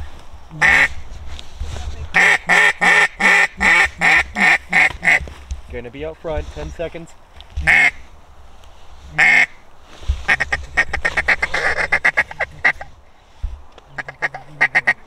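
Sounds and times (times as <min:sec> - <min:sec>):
duck call quacking and clucking: 0:00.6 - 0:00.9, 0:02.2 - 0:05.2, 0:07.6 - 0:08.0, 0:09.1 - 0:09.6, 0:10.3 - 0:12.9, 0:13.9 - 0:15.0.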